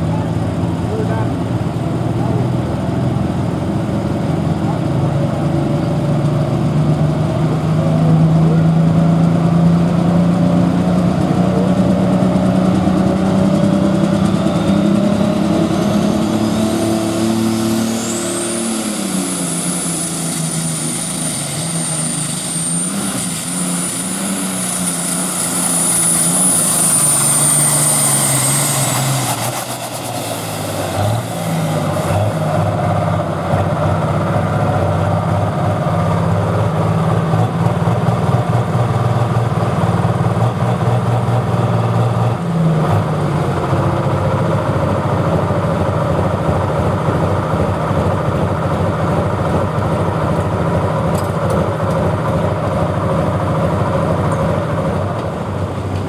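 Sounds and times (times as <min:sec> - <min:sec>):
tractor diesel engine running hard: 0:00.0 - 0:56.0.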